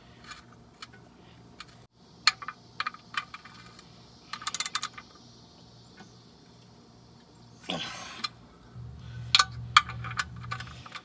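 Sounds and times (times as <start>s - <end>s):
metallic clicks of hand tools: 1.6s - 5.0s.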